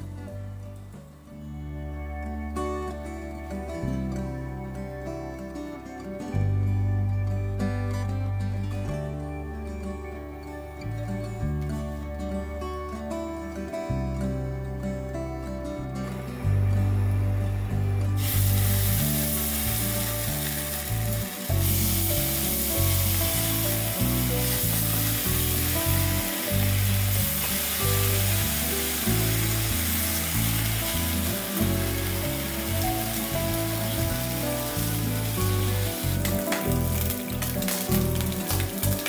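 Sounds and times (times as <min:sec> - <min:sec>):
food sizzling in a pan: 0:18.2 - 0:39.0.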